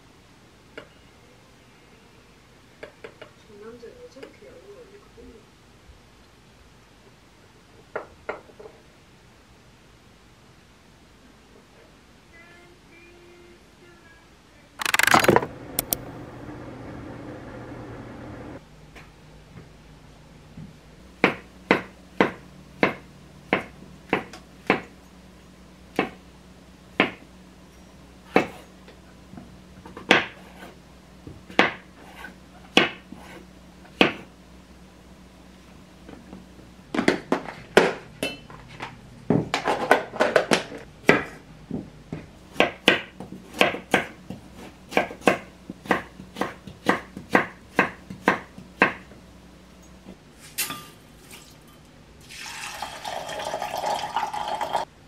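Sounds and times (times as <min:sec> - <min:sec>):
knife chopping on wooden board: 0:21.2 - 0:24.9, 0:28.3 - 0:28.6, 0:31.5 - 0:33.4, 0:34.0 - 0:34.3, 0:42.2 - 0:49.1.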